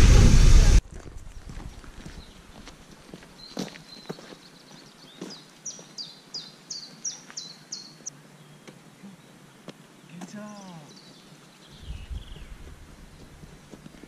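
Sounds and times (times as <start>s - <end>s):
footsteps on gravel: 0.8s - 6.0s, 12.6s - 14.0s
songbird calling high notes: 10.0s - 12.4s.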